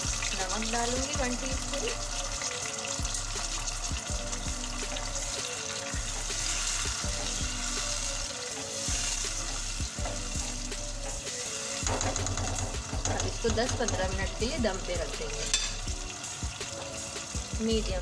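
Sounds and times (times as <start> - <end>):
food sizzling in a pot: 0.0 - 18.0
spatula knocking against pot: 11.8 - 14.4.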